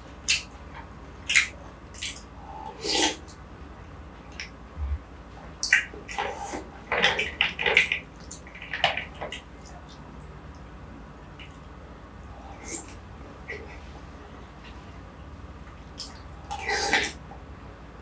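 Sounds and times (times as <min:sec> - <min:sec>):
slurping and wet mouth sounds: 0:12.5 - 0:13.0.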